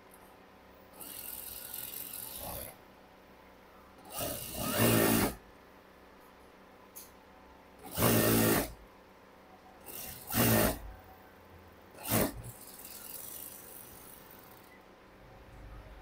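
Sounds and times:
sewing machine stitching: 1.0s - 2.8s, 4.0s - 5.4s, 7.8s - 8.8s, 9.8s - 10.9s, 12.0s - 14.8s.

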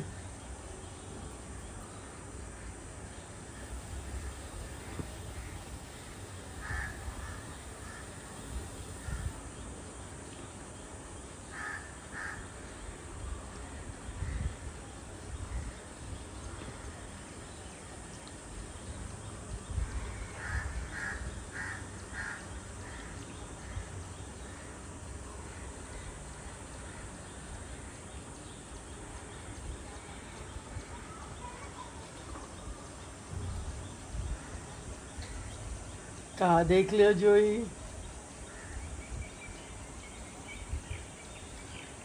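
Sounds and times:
crows cawing: 6.6s - 9.3s, 11.5s - 12.5s, 20.4s - 23.8s.

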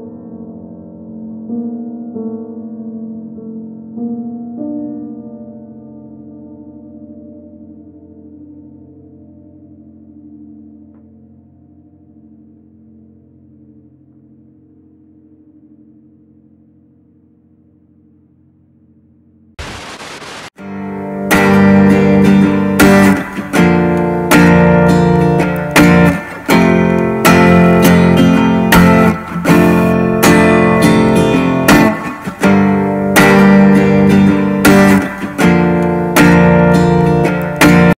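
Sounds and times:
static hiss: 19.6s - 20.6s
strummed guitar music: 20.6s - 38.0s.

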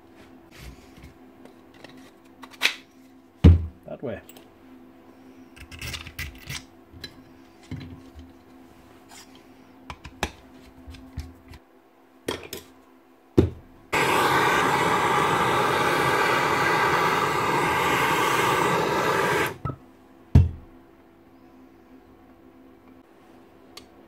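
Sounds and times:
blowtorch hissing: 13.9s - 19.7s.

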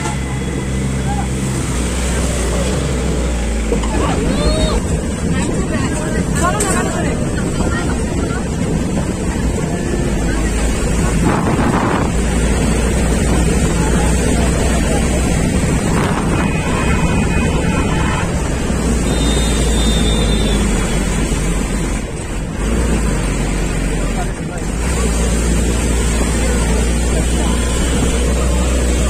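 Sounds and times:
vehicle engine and road rumble: 0.0s - 29.0s
wind buffeting microphone: 4.1s - 18.8s.

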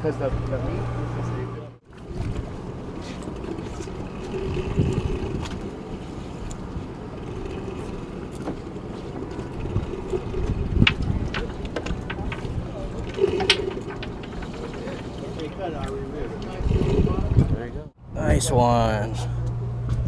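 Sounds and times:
boat engine rumble: 0.0s - 20.0s.

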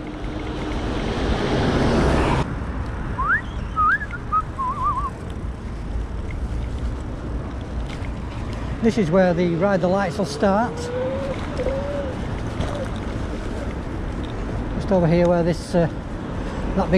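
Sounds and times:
wind and road rumble: 0.0s - 16.9s
person whistling: 3.2s - 5.1s.

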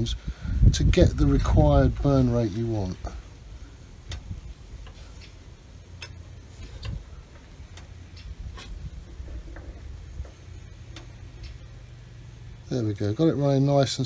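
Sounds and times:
low steady rumble: 0.0s - 14.0s
wood fire crackling in a stove: 0.0s - 14.0s
sharp pops and ticks: 3.9s - 9.0s, 9.6s - 11.8s.

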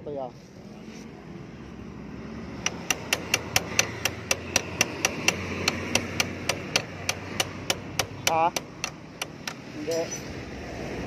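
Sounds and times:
hammer tapping on metal: 2.6s - 10.2s.

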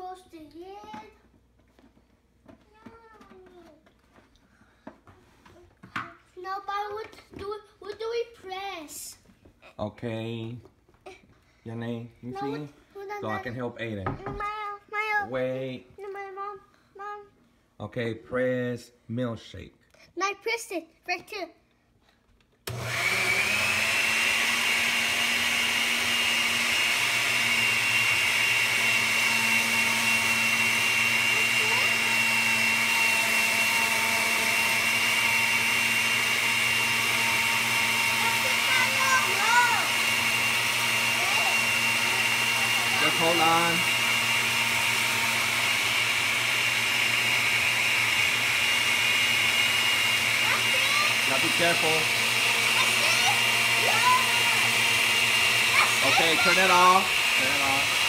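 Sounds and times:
blender motor whining: 22.6s - 58.0s.

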